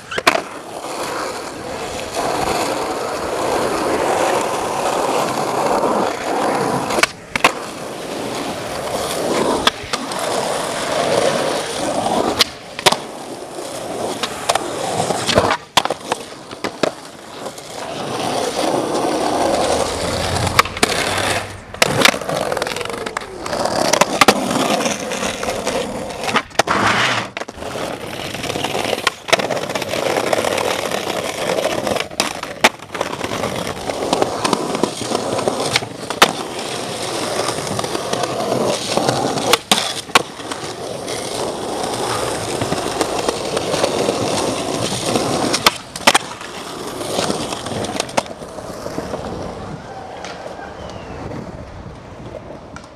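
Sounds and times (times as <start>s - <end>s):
skateboard clacks: 0.0s - 52.9s
skateboard wheels rolling on pavement: 0.0s - 52.9s.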